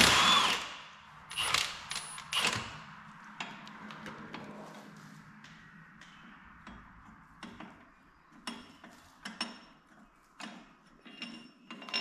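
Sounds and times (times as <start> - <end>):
wrench clinking on metal bolt: 11.0 - 12.0.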